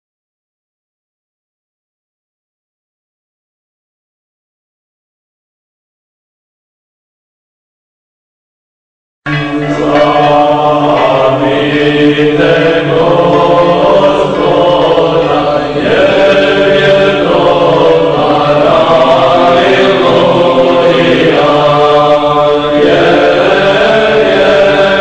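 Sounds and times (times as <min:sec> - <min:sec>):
choir chanting a slow hymn: 0:09.3 - 0:25.0
held low drone note: 0:09.3 - 0:25.0.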